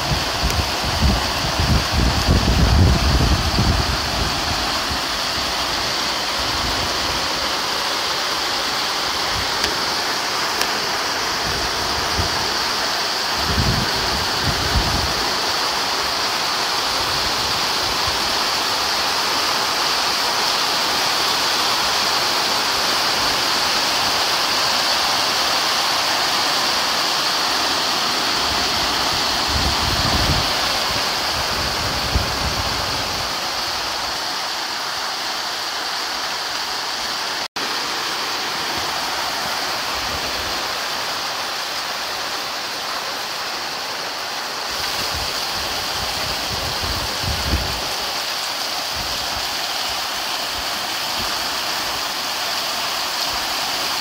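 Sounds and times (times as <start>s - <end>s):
wind rumble on microphone: 0.0s - 5.5s, 13.3s - 15.4s, 28.5s - 33.7s, 44.8s - 48.0s
heavy rain on pavement: 0.0s - 54.0s.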